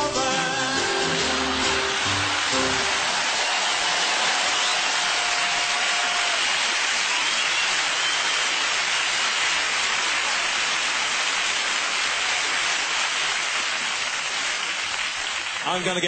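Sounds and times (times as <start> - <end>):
audience applauding: 0.8 - 16.0
whistles from audience: 1.5 - 9.3.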